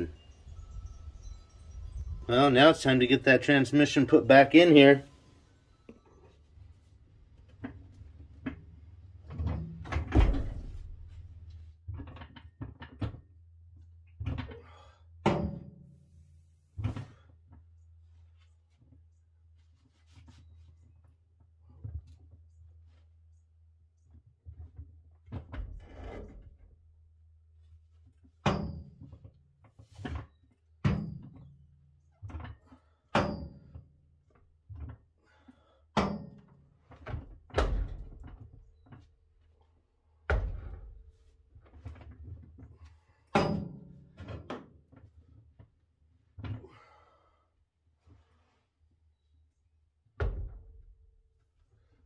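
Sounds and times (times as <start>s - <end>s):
heavy metal clunks and knocks: 9.2s - 11.2s, 30.8s - 31.6s, 33.1s - 33.8s, 36.0s - 38.5s, 40.3s - 41.2s, 43.3s - 44.7s.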